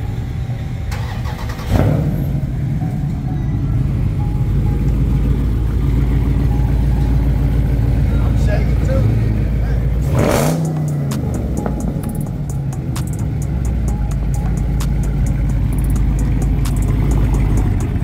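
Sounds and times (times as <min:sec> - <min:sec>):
car engine through loud exhaust: 0:00.0 - 0:18.0
engine throttle burst: 0:00.9 - 0:02.5.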